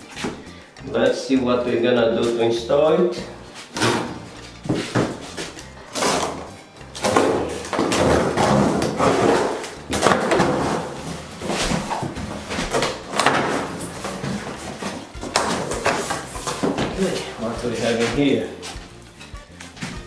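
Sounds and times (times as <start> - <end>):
knife cutting cardboard: 3.6 - 17.0
cardboard flaps scraping: 3.6 - 17.2.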